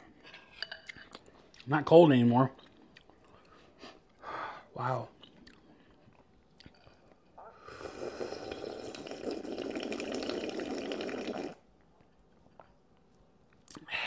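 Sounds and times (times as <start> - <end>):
person slurping soup: 7.4 - 11.6.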